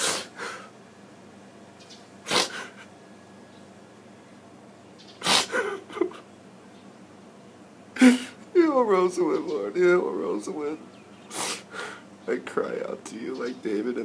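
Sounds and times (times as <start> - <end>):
man breathing sharply: 11.4 - 12.1.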